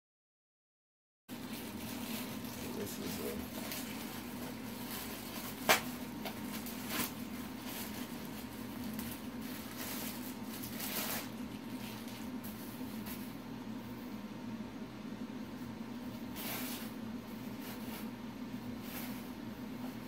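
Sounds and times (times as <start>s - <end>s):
plastic bag rustling: 1.3s - 13.4s.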